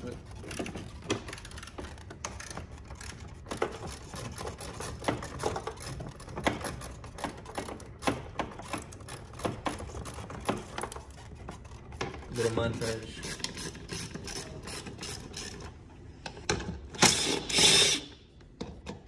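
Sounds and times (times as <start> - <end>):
hand tools clicking and knocking: 0.0 - 12.3.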